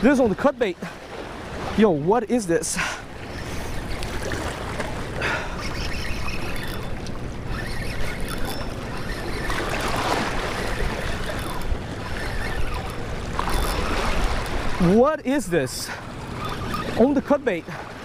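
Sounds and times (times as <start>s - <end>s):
waves splashing against rocks: 9.4s - 12.0s, 12.6s - 15.6s.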